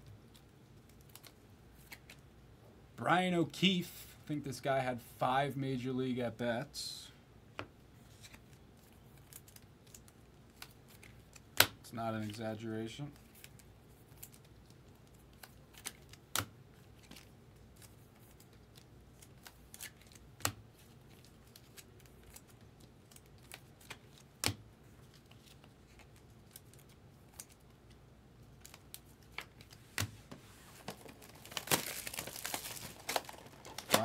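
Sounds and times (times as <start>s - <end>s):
trading cards clicking and snapping: 23.1s - 24.6s, 30.8s - 34.0s
cards tapped down: 24.4s - 24.6s
foil pack crinkling: 30.7s - 34.0s.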